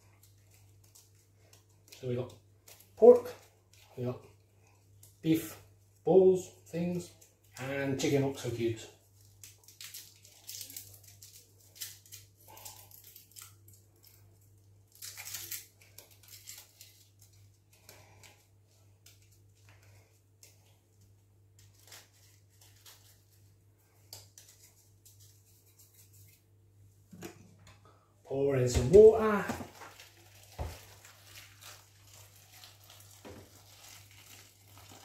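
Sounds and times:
foil crinkling: 7.0s - 26.4s, 29.2s - 35.0s.

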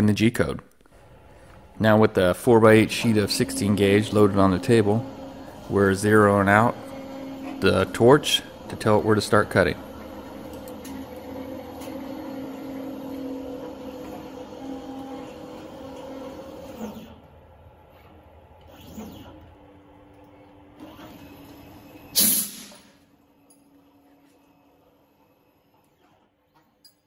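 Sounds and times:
stepper motor whine: 1.0s - 17.2s.

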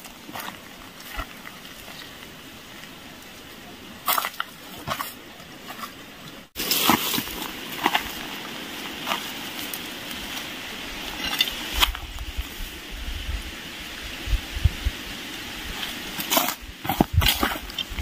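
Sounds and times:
footsteps through dry brush: 0.0s - 13.0s, 15.4s - 18.0s
brush knife chopping undergrowth: 16.2s - 18.0s.

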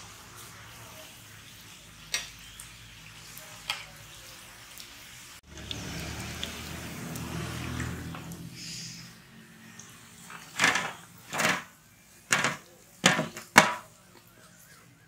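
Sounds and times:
oil sizzling: 0.0s - 15.0s
metal spoon tapping pan: 2.1s - 2.4s, 12.3s - 13.9s.

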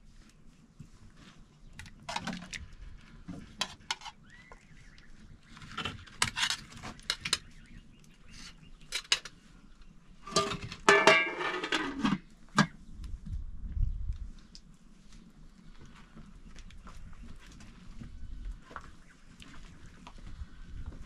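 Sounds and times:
metal utensil scraping a pot: 3.5s - 4.2s, 5.6s - 7.5s, 8.3s - 9.4s, 10.2s - 12.7s.

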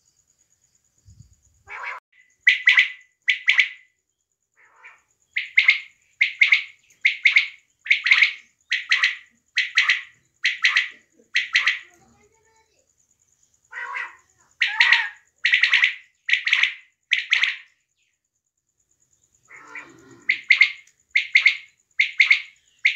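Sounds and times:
quail calling: 1.7s - 3.9s, 4.6s - 12.0s, 13.7s - 17.8s, 19.5s - 22.9s.

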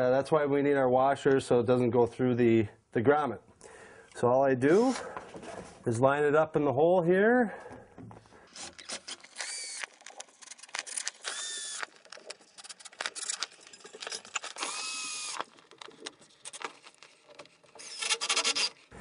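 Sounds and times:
cordless drill whining: 8.5s - 10.2s, 10.8s - 12.2s, 14.3s - 15.5s, 17.7s - 19.0s.

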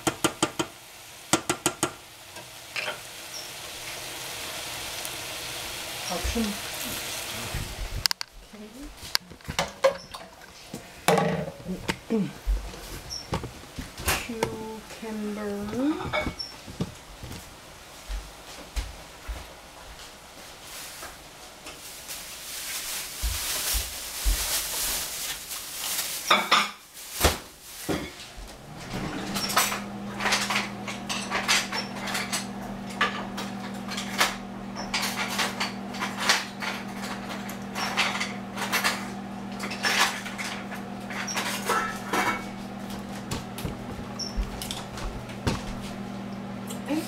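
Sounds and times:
appliance hum: 0.0s - 26.4s, 27.0s - 47.0s
dishes and utensils clinking: 2.7s - 3.5s, 9.4s - 11.9s, 15.6s - 16.6s, 26.3s - 26.8s, 27.9s - 28.2s, 28.8s - 45.0s.

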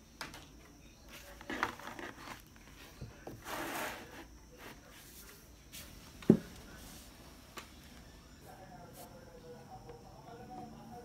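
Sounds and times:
pages rustling: 1.2s - 5.9s
soft thump: 6.2s - 6.5s.

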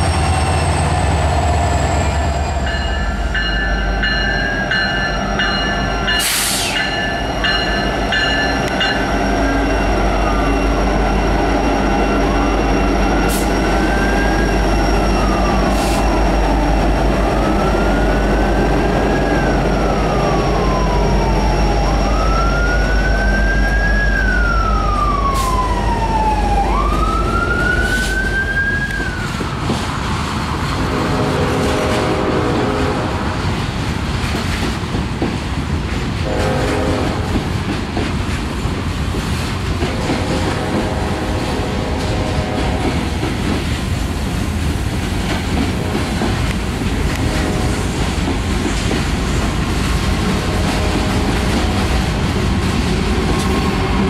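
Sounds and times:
train clanks: 0.0s - 17.1s, 28.8s - 54.0s
freight train wheels rumbling: 0.0s - 54.0s
siren wailing: 8.7s - 29.4s.

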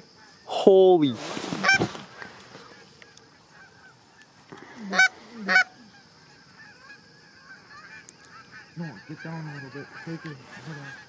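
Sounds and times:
distant flock of geese honking: 1.5s - 11.0s
loud goose honks: 1.6s - 1.9s, 4.9s - 11.0s.

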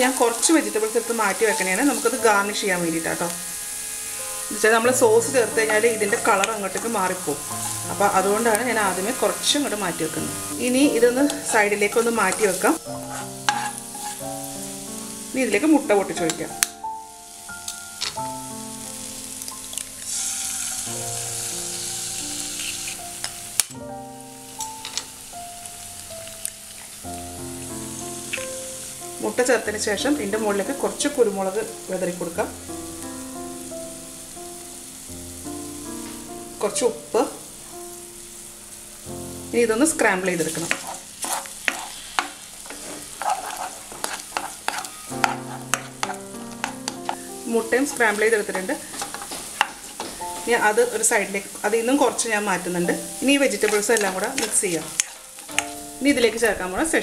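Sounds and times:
spatula scraping in wok: 0.0s - 16.6s, 20.0s - 23.4s, 39.9s - 56.4s
egg sizzling in hot oil: 0.0s - 57.0s
soft background music: 0.0s - 57.0s.

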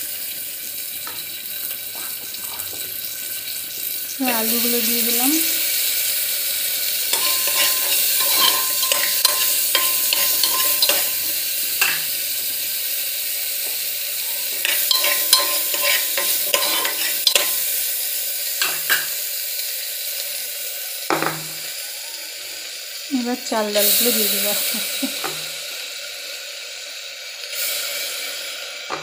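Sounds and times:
vegetables sizzling in butter: 0.0s - 29.0s
spoon scraping metal pot: 7.1s - 12.1s, 14.2s - 17.7s.

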